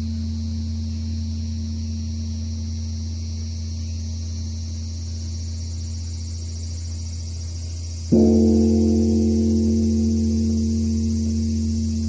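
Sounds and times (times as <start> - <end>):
temple bell humming: 8.1 - 12.0.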